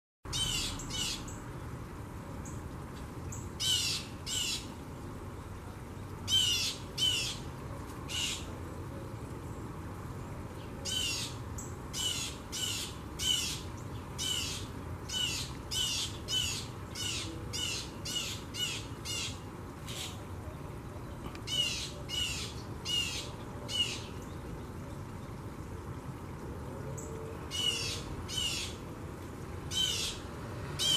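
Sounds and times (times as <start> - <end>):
bird harsh calls: 0.3 - 1.3, 3.6 - 4.7, 6.3 - 7.4, 10.9 - 11.4, 14.2 - 20.2, 27.5 - 28.8.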